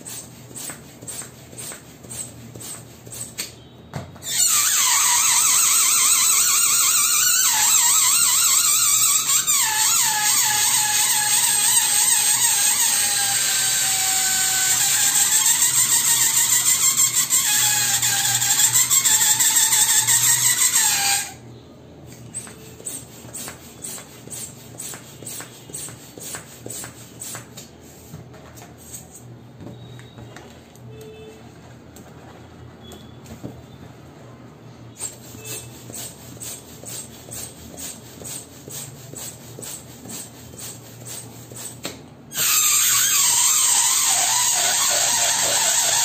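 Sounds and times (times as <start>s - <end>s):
hand balloon pump strokes: 0.0s - 3.6s, 4.2s - 21.4s, 22.1s - 29.2s, 35.0s - 46.0s
balloon air squealing: 4.2s - 21.5s, 22.3s - 27.6s, 34.9s - 46.0s.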